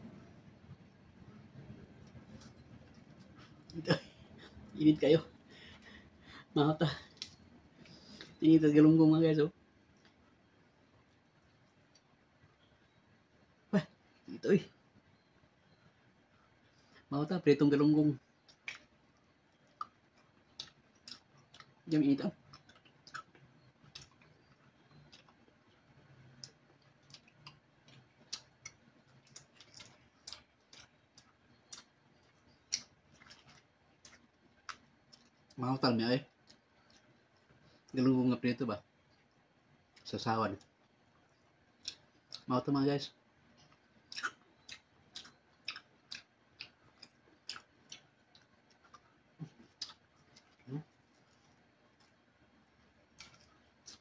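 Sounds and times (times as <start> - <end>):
chewing: 1.5 - 4.7, 18.3 - 35.6, 36.3 - 38.0, 43.5 - 54.0.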